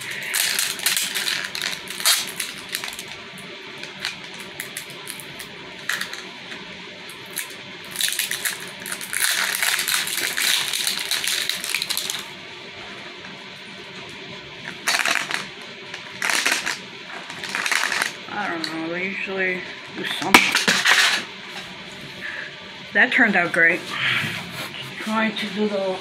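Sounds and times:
plastic wrapping crinkling: 0.0 - 3.2, 7.3 - 12.3, 14.7 - 18.2.

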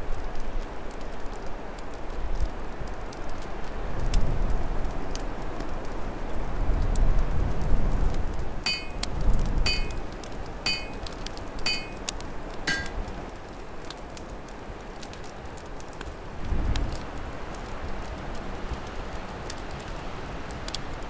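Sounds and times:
log fire crackling: 0.0 - 21.0
short ringing clinks: 8.7 - 9.1, 9.7 - 10.0, 10.7 - 11.1, 11.7 - 12.1, 12.7 - 13.0.

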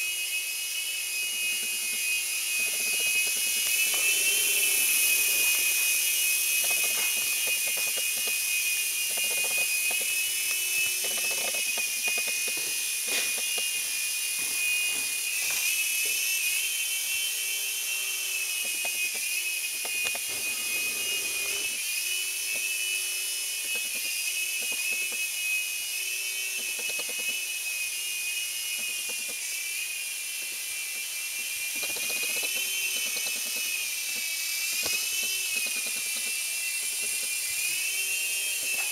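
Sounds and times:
rc helicopter rotor whine: 0.0 - 38.9.

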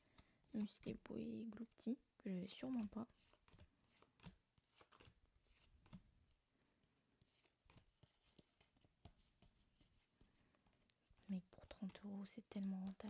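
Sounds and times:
trading cards clicking and rustling: 2.4 - 6.0.

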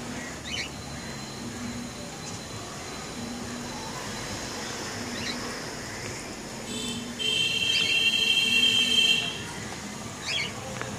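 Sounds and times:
parrots chirping: 0.0 - 2.4, 4.7 - 6.3, 10.2 - 10.6.

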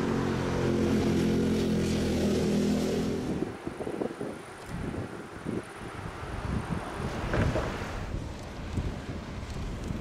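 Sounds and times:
wind buffeting microphone: 3.0 - 10.0.

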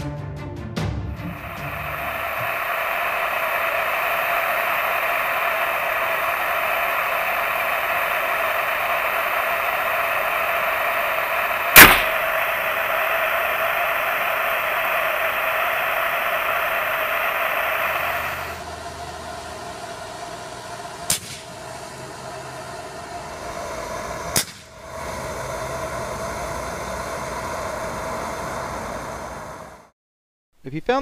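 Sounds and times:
propane torch hissing: 1.2 - 29.9
sharp pops: 2.0 - 17.9, 21.1 - 21.5, 24.3 - 24.8.

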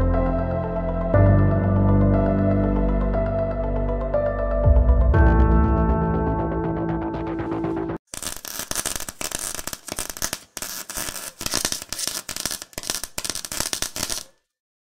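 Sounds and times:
electric crackling snaps and hiss: 8.1 - 14.4.

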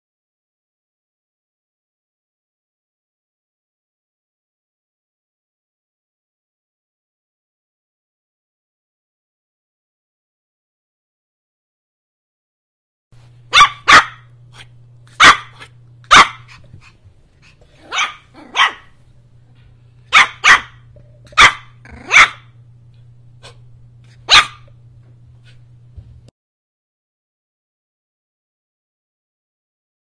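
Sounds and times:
faint low hum: 13.2 - 26.3
puppy yapping: 13.5 - 16.6, 17.8 - 18.9, 20.1 - 22.5, 24.3 - 24.7.

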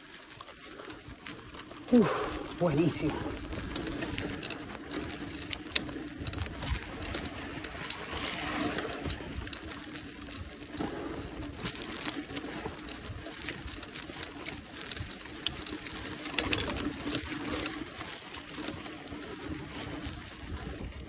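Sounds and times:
bike tyre noise on road: 0.0 - 21.0
sharp clicks and rattles: 0.3 - 21.0.

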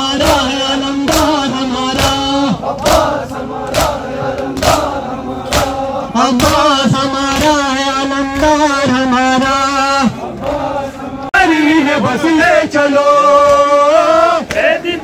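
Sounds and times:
rhythmic chest-beating strikes: 0.0 - 10.8
mourners chanting in unison: 0.0 - 15.0.

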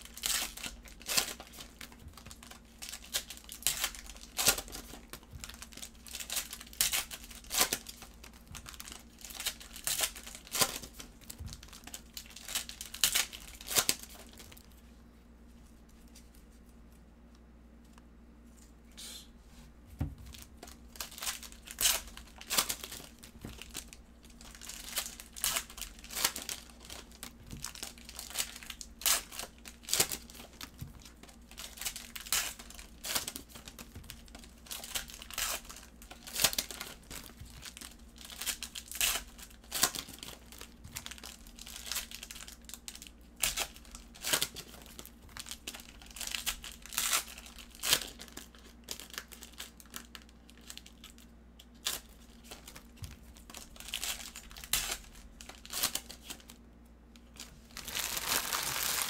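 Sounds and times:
foil wrappers crinkling and tearing: 0.0 - 14.7, 20.3 - 56.6, 57.2 - 59.0
soft low thump: 19.8 - 20.3.

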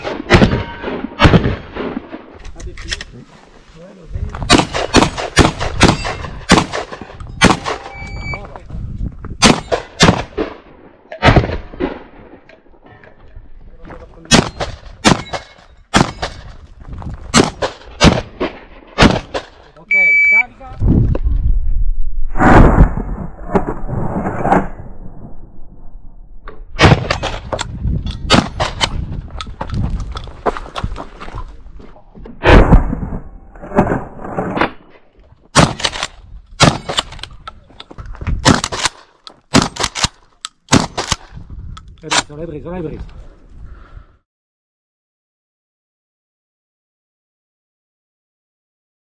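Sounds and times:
rifle gunshots: 0.0 - 2.3, 4.5 - 8.1, 9.4 - 12.2, 14.3 - 16.5, 17.3 - 19.6, 26.8 - 27.6, 28.2 - 29.0, 35.6 - 37.2, 38.4 - 41.3
shotgun shots: 0.0 - 2.3, 4.5 - 8.4, 9.4 - 12.2, 14.3 - 16.5, 17.3 - 19.6, 26.8 - 27.6, 28.2 - 29.0, 35.6 - 37.2, 38.4 - 41.3.

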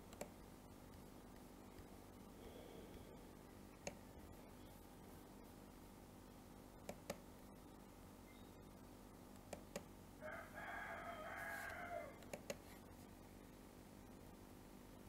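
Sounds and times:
computer mouse clicks: 0.0 - 1.9, 3.8 - 4.0, 6.8 - 7.2, 9.3 - 9.9, 11.7 - 12.7.

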